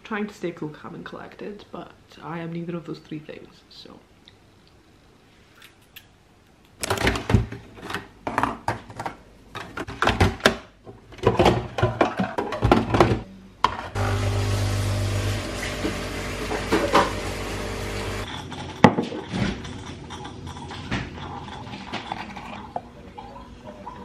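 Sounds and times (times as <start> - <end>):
coffee machine humming and hissing: 14.0 - 18.3.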